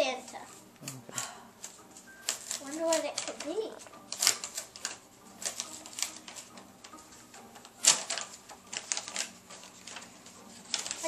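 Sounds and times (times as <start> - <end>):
envelope tearing open: 1.6 - 7.0, 7.6 - 11.0
paper crinkling and rustling: 1.6 - 11.0.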